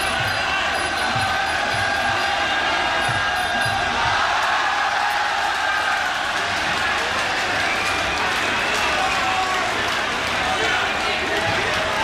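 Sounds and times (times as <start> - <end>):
drum beats: 0.0 - 7.0, 11.2 - 12.0
crowd shouting: 0.0 - 12.0.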